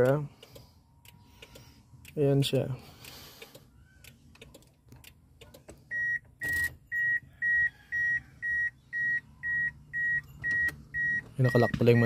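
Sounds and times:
car warning buzzer beeping: 5.9 - 12.0.

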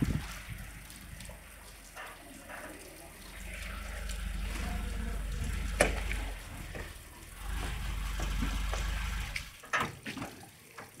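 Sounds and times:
water sloshing under tyres: 0.0 - 11.0
car engine running: 3.5 - 9.6.

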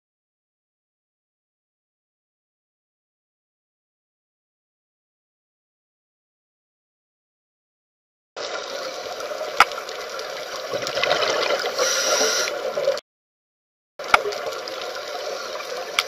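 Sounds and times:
water sloshing and gurgling: 8.4 - 13.0.

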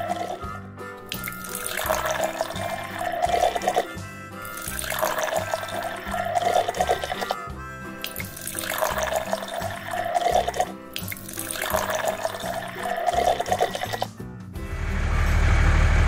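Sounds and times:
background music: 0.0 - 15.1
taps running and pouring liquid: 1.1 - 7.4, 8.0 - 14.1
truck engine low rumble: 14.2 - 16.0.

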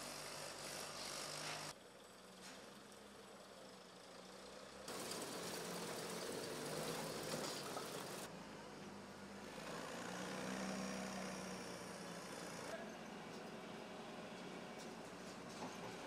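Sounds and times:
heavy machinery diesel engine: 0.0 - 8.3
outdoor noise hiss: 0.0 - 12.8.

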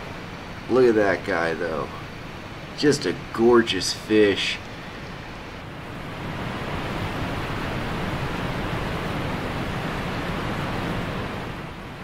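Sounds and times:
wind blowing across microphone: 4.5 - 12.0.

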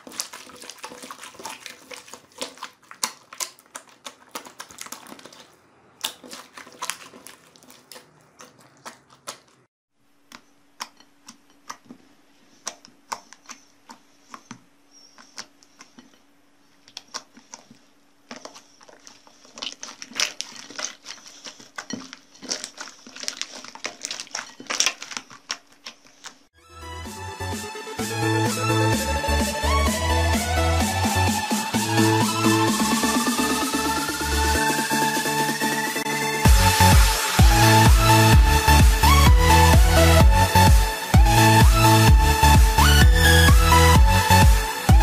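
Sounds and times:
slime clicking and popping: 0.0 - 9.6.

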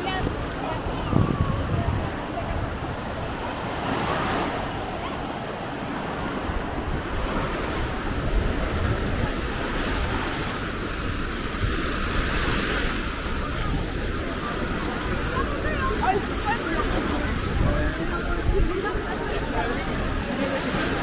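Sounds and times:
people talking: 0.0 - 6.5, 13.2 - 21.0
waves breaking on sand: 0.0 - 21.0
wind buffeting microphone: 0.0 - 21.0.

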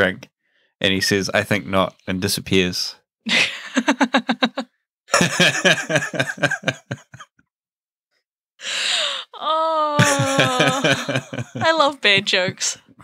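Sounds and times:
person laughing: 3.3 - 7.3, 8.9 - 12.7.

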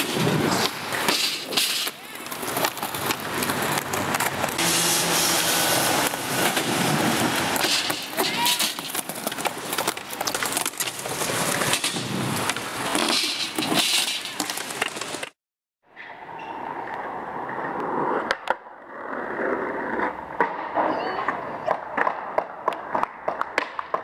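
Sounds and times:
skateboard clacks: 0.0 - 4.6, 5.8 - 15.4, 19.4 - 24.0
skateboard wheels rolling on concrete: 0.0 - 24.0.

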